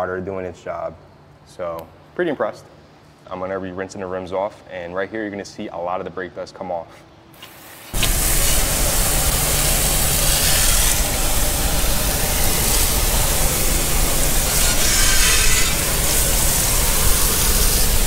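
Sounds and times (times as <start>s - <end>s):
hose spraying water on wheel: 7.4s - 18.0s.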